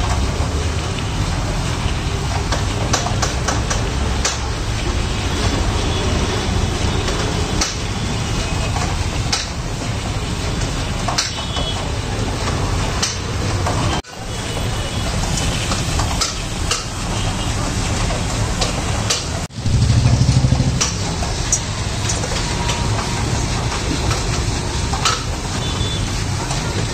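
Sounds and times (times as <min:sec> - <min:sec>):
machine motor low hum: 0:19.5 - 0:21.3.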